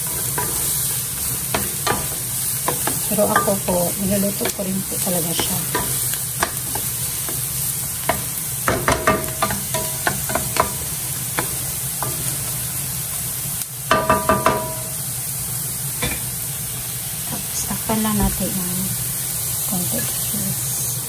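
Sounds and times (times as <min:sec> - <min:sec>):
spatula knocking and scraping pan: 0:00.0 - 0:12.8, 0:13.9 - 0:15.0
vegetables sizzling in a frying pan: 0:00.0 - 0:21.0.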